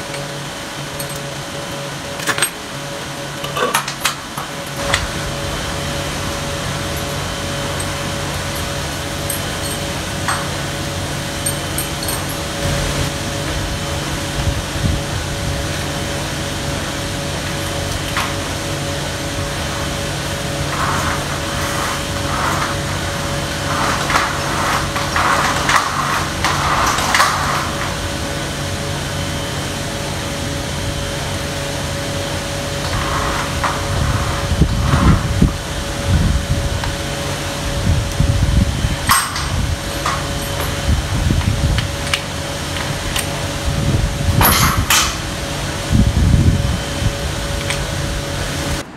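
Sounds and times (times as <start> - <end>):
machine hum: 0.0 - 48.9
chain and padlock rattling: 6.9 - 10.7, 11.3 - 12.6.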